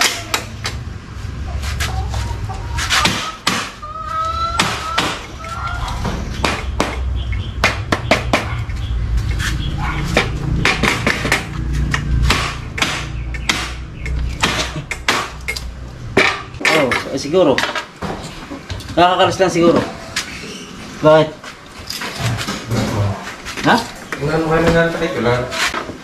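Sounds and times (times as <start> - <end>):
chicken calling: 1.3 - 10.6, 19.1 - 21.4.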